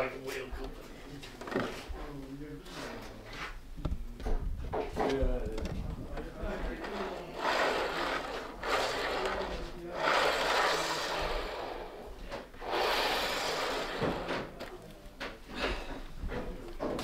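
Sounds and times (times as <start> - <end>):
model train wheels rumbling on rails: 6.8 - 14.6.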